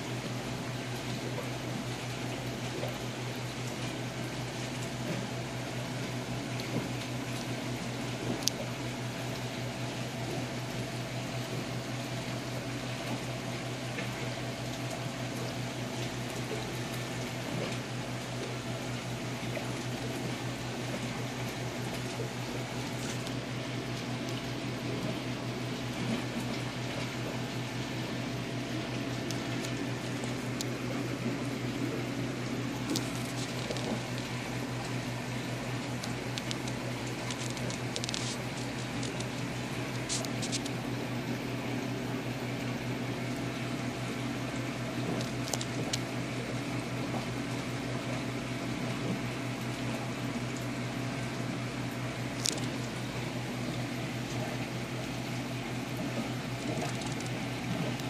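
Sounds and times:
filter pump humming: 0.0s - 58.0s
water trickling and splashing: 11.4s - 40.9s.

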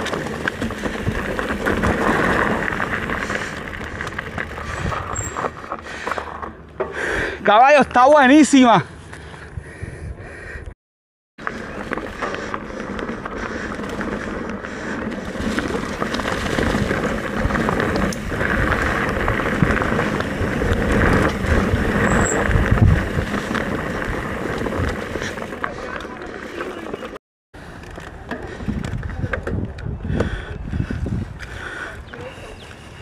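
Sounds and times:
tyres rumbling over dirt: 0.0s - 7.0s, 11.4s - 29.6s
bike clattering: 0.0s - 7.4s, 11.4s - 30.4s.

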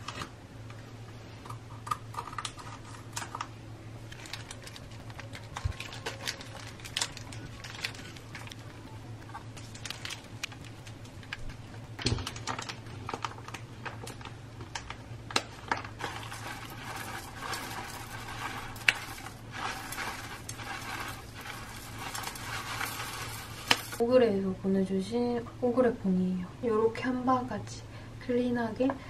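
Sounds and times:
plastic pouches crinkling: 4.1s - 24.0s
cereal pouring into bowl: 16.0s - 24.0s.

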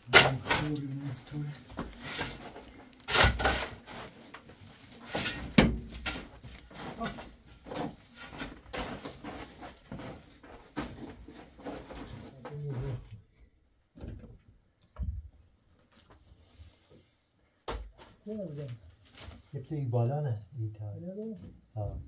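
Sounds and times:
heavy shovel strikes: 0.0s - 1.1s, 3.1s - 4.0s
shovel scraping dirt and rocks: 0.1s - 4.3s.

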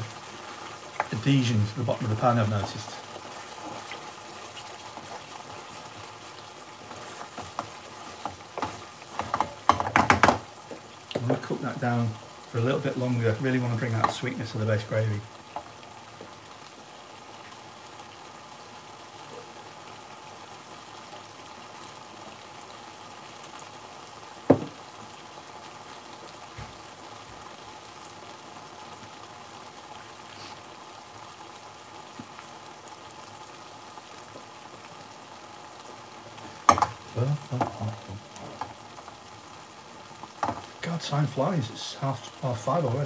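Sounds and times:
sauce bubbling and sizzling in pan: 0.0s - 43.0s
pan knocking on hob: 8.6s - 10.5s, 24.5s - 24.8s.

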